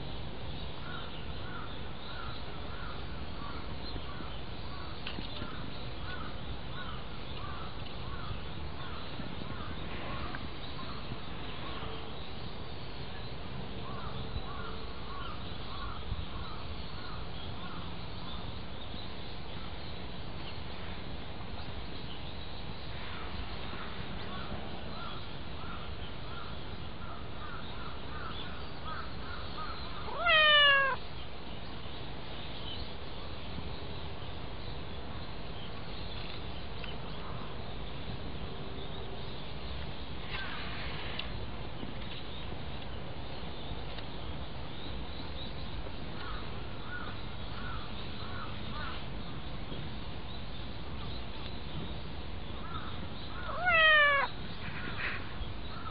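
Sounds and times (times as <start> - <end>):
background hiss: 0.0 - 55.9
cat meowing: 30.0 - 31.0, 53.4 - 54.4.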